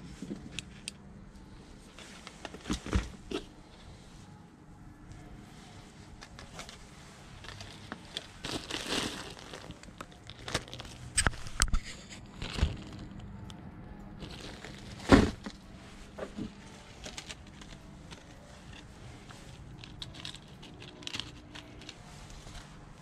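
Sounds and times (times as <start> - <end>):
plastic bag crinkling: 6.2 - 13.4, 14.2 - 23.0
small items clicking: 17.0 - 22.7.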